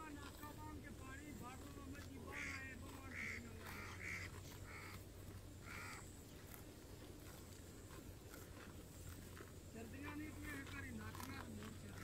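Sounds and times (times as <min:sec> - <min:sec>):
crow cawing: 0:02.3 - 0:05.0, 0:05.6 - 0:06.0.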